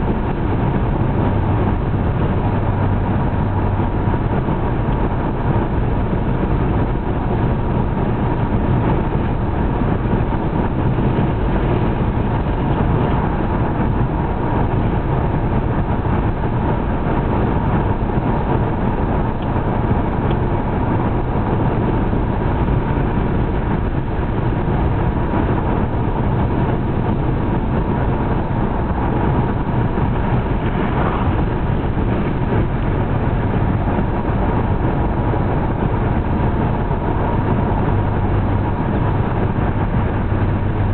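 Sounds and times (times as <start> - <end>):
car engine cruising: 0.0 - 40.9.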